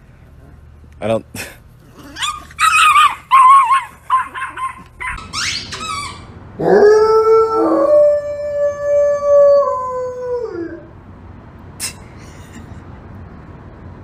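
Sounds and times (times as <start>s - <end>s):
dog howling: 2.0s - 10.9s.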